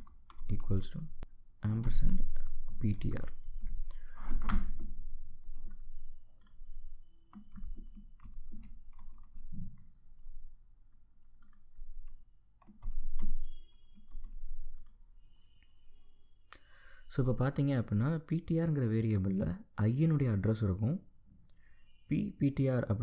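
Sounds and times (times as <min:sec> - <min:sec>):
keyboard typing clicks: 0:06.4 - 0:06.6, 0:07.3 - 0:09.8, 0:11.2 - 0:15.0.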